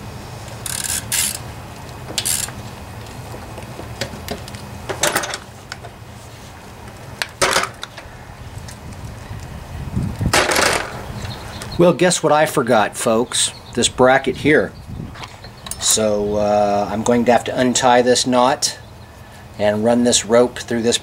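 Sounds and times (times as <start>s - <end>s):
low steady hum: 0.0s - 21.0s
tools clinking and scraping metal: 4.0s - 5.9s.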